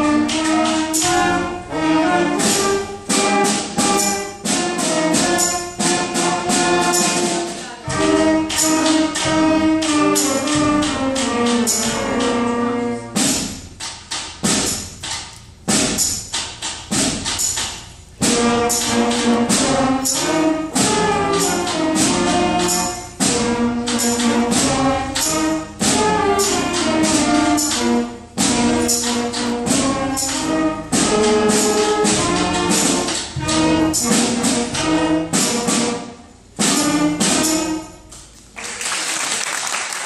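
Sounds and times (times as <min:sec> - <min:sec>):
concert band playing: 0:00.0 - 0:38.5
percussion strikes: 0:00.0 - 0:38.6
audience applause: 0:38.6 - 0:40.0.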